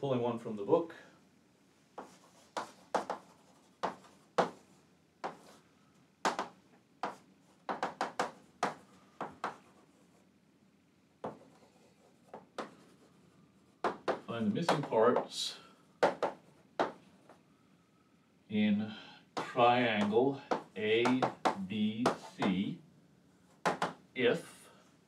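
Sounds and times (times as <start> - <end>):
chalk scraping on chalkboard: 22.1 - 22.6.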